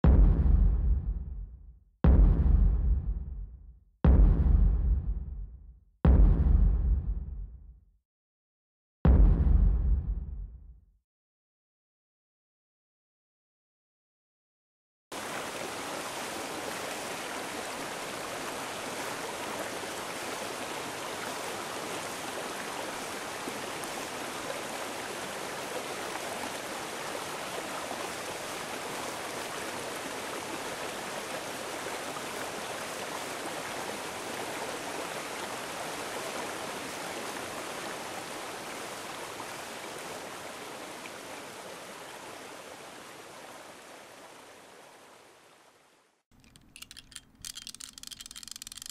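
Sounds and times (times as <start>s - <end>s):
running water: 15.1s - 48.9s.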